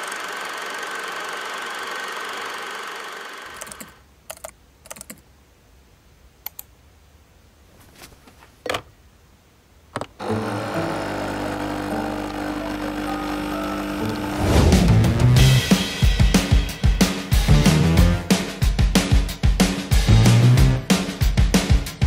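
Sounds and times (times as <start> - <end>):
computer keyboard typing: 3.5 - 5.2.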